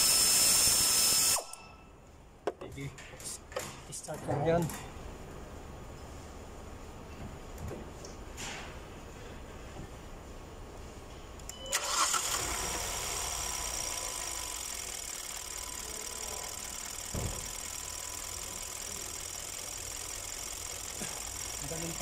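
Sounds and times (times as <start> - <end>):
car engine starting and idling: 11.7 - 22.0.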